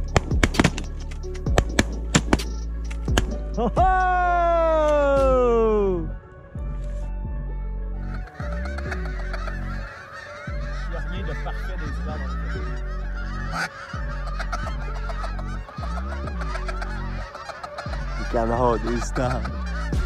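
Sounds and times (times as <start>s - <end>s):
geese honking: 8.0s - 20.0s.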